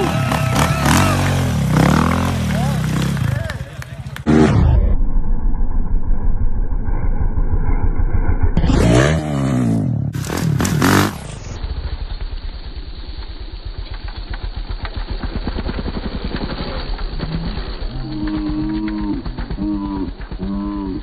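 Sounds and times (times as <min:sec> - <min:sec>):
dirt bike engine revving: 0:00.0 - 0:04.8, 0:08.6 - 0:12.7, 0:13.6 - 0:21.0
dirt bike idling at low revs: 0:10.2 - 0:21.0.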